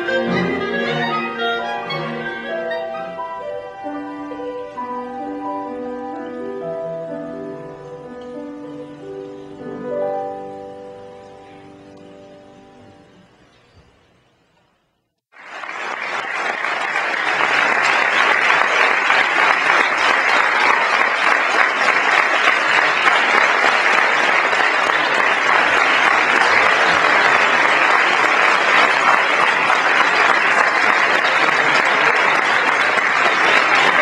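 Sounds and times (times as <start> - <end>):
audience applause: 15.3 - 34.0.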